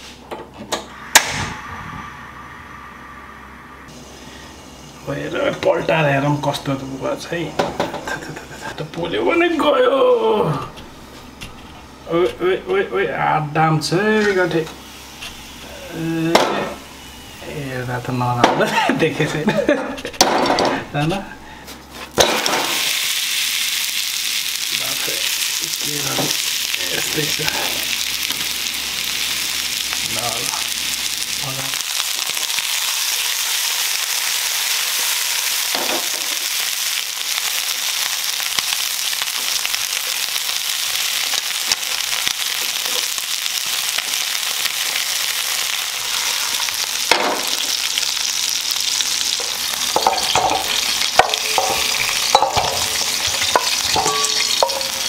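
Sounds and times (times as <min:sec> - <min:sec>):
chicken wings sizzling in oil: 0:14.0 - 0:18.4, 0:22.1 - 0:55.0
tongs knocking and scraping pan: 0:49.9 - 0:55.0.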